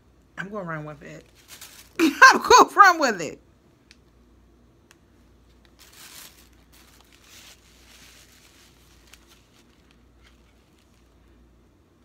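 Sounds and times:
objects rustling and scraping: 1.2 - 2.0, 5.5 - 11.3.

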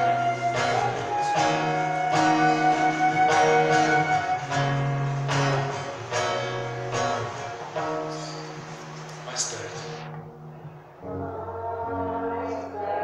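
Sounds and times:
flute playing held notes: 0.0 - 5.3
acoustic guitar strumming: 0.0 - 10.4.

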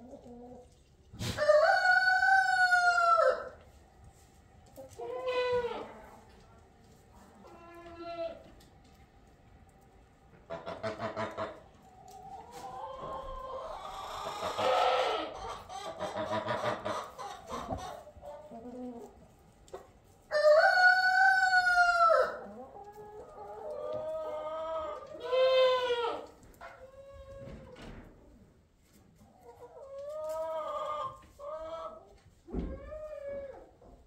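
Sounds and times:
chickens clucking: 0.0 - 34.0
rooster crowing: 1.4 - 3.6, 20.3 - 22.4.

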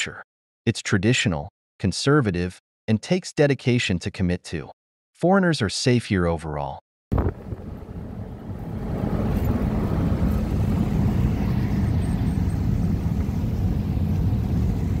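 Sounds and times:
road and engine rumble in car: 7.1 - 15.0.

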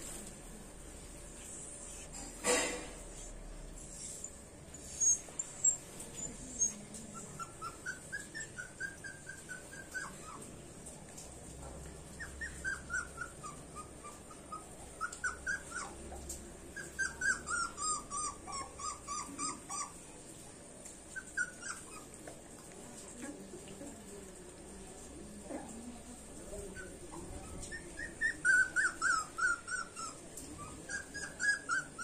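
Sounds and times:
puppy whimpering: 3.1 - 10.8, 12.1 - 20.2, 21.1 - 22.3, 26.4 - 32.0.

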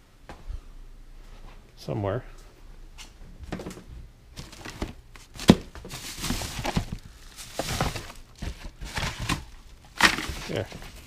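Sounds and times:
cardboard and plastic rustling: 3.4 - 11.0.

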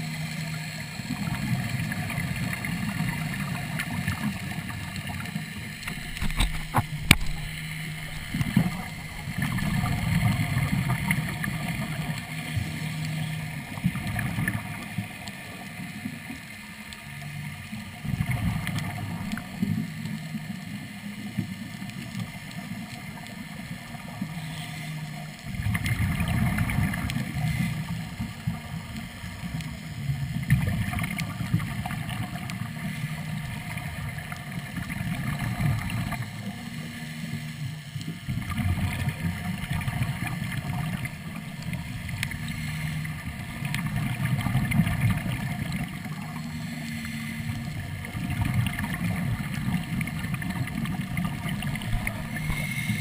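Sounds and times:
exhaled bubbles: 1.0 - 12.6, 25.4 - 29.5, 38.3 - 53.0
regulator breathing underwater: 24.2 - 25.3, 27.2 - 28.2, 41.1 - 43.6, 46.3 - 47.8, 51.8 - 53.0.

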